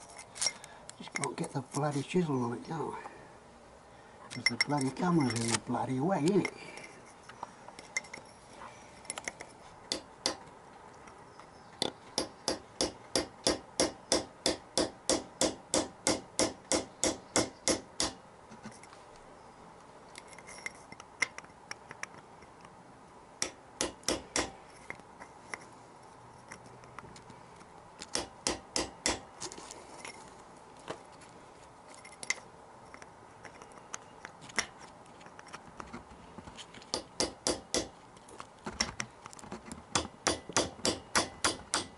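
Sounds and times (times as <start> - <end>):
hammer striking chisel on metal: 9.9 - 10.4, 12.2 - 18.2, 23.4 - 24.6, 28.1 - 29.3, 36.9 - 37.9, 40.0 - 41.9.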